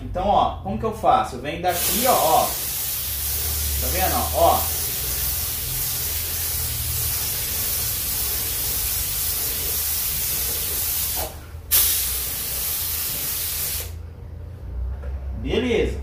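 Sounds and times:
spray gun hissing: 1.7s - 14.0s.

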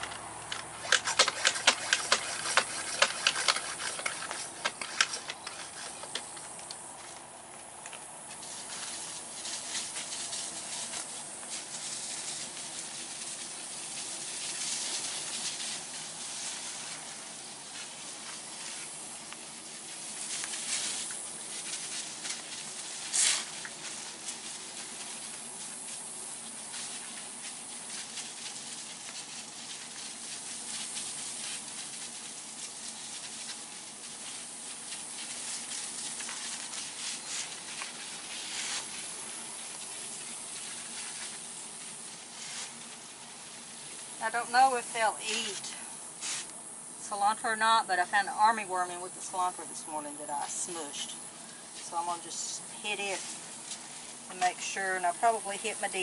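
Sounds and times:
sprayer hissing: 0.0s - 6.6s, 8.3s - 47.2s, 49.9s - 56.0s.

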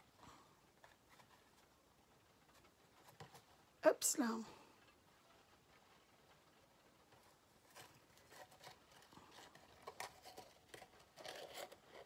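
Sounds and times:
cardstock rustles and clicks: 7.1s - 12.0s.

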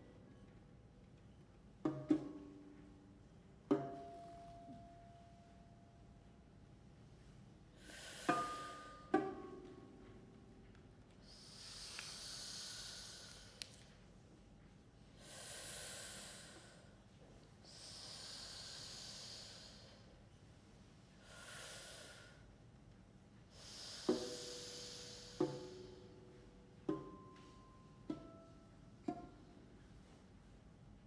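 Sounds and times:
plucked lute notes: 1.8s - 3.0s, 3.7s - 5.1s, 8.3s - 10.6s, 25.4s - 29.9s
breathy hissing exhalations: 7.8s - 9.0s, 11.2s - 13.7s, 15.2s - 16.9s, 17.6s - 20.1s, 21.2s - 22.4s, 23.5s - 26.0s.

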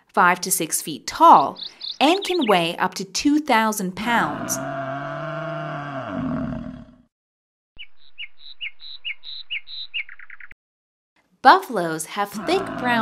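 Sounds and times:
bird chirping: 1.3s - 2.8s, 7.8s - 10.6s
buffalo bellowing: 4.0s - 7.0s, 12.3s - 13.0s.

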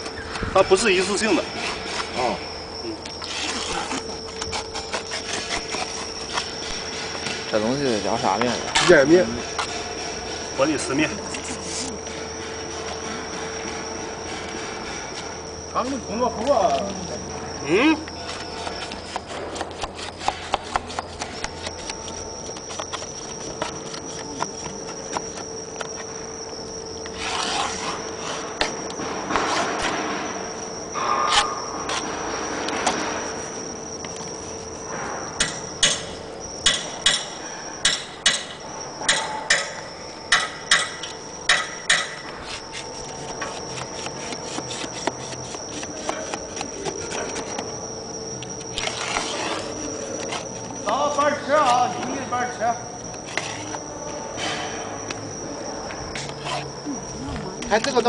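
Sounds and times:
insulation rubbing and rustling: 0.0s - 17.5s, 18.2s - 30.6s, 42.2s - 54.1s
steady high whine: 0.0s - 58.0s.

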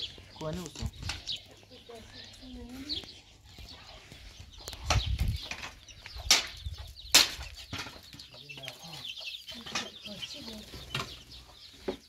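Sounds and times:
wooden sticks cracking: 4.6s - 8.8s.

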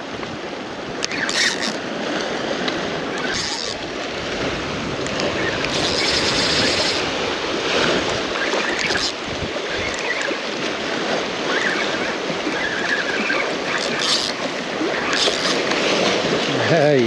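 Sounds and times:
small waves lapping: 0.0s - 17.0s
water splashes: 0.0s - 17.0s
wind on microphone: 0.0s - 17.0s.

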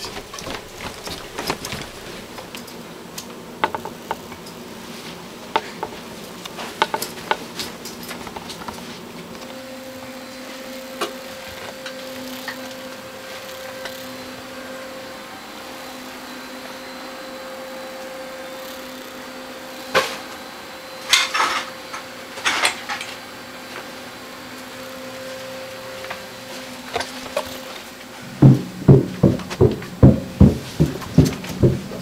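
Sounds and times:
knocks and clatter of objects: 0.0s - 2.7s, 28.3s - 32.0s
steady low hum: 0.0s - 32.0s.

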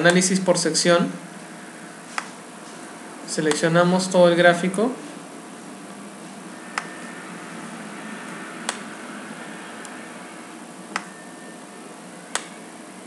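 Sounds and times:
steady microphone hiss: 0.0s - 13.0s
computer mouse clicking: 10.9s - 11.1s.

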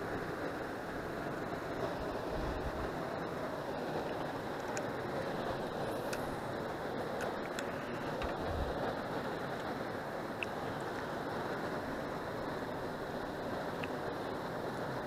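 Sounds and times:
river water flowing: 0.0s - 15.0s
faint ticks: 7.2s - 8.4s, 10.4s - 11.1s, 13.7s - 14.0s.

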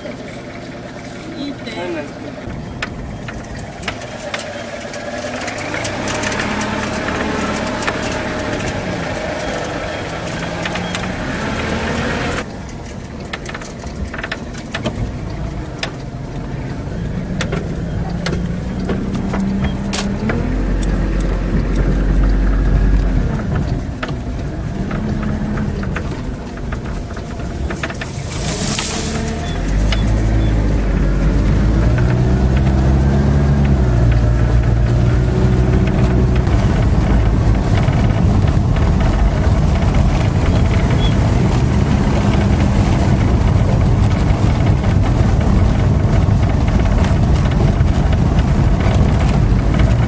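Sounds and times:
road noise: 0.0s - 50.0s
vehicle engine: 0.0s - 50.0s
short knocks and rattles: 17.0s - 50.0s.

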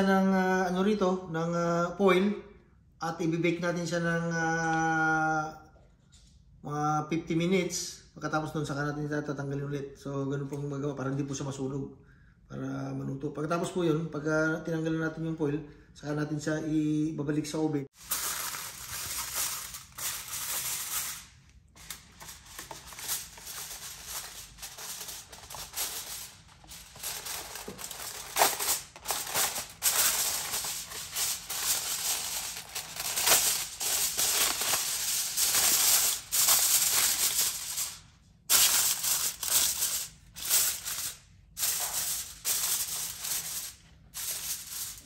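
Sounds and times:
aluminium foil crinkling: 18.0s - 45.0s.

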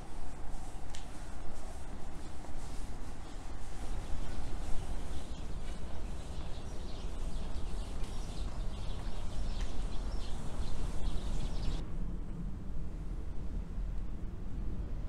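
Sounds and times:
small birds chirping: 2.2s - 11.8s.

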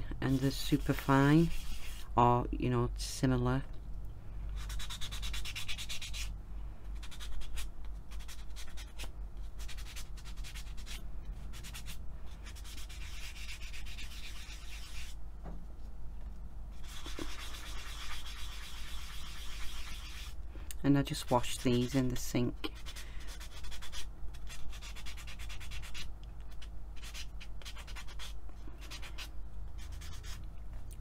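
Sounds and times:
hand sanding strokes: 0.3s - 2.1s, 4.6s - 6.3s, 9.6s - 15.2s, 16.8s - 20.4s, 21.2s - 26.1s.

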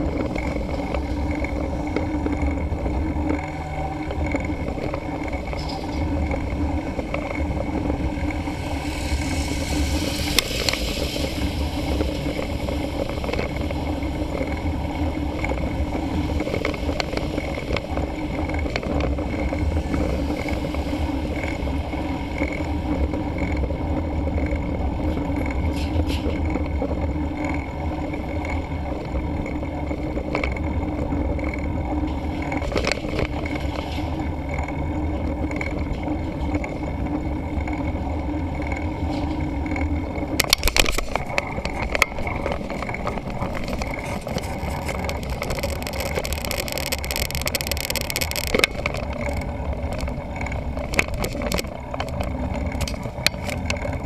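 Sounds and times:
bike rolling on paved road: 0.0s - 54.0s
wind buffeting microphone: 0.0s - 54.0s
scattered clicks: 38.6s - 54.0s.

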